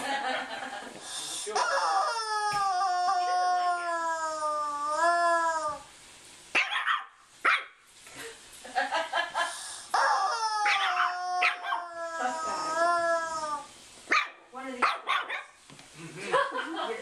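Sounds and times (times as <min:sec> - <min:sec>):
puppy yapping: 0:06.6 - 0:07.7, 0:10.0 - 0:12.3, 0:14.1 - 0:15.5.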